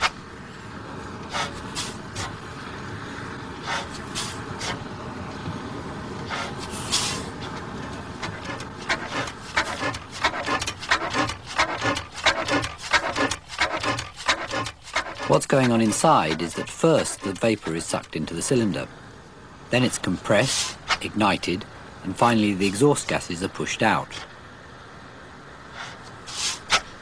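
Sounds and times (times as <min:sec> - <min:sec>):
engine hissing puffs: 0:00.0 - 0:19.7, 0:20.3 - 0:21.1, 0:24.1 - 0:27.0
mechanical clicks and clanks: 0:07.8 - 0:18.2.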